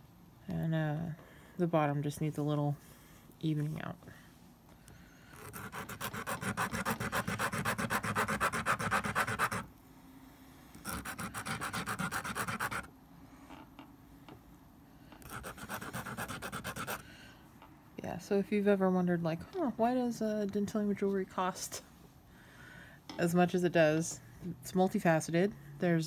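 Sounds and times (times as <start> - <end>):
shell rasping on glass file: 5.4 - 9.7, 10.8 - 12.9, 15.2 - 17.0.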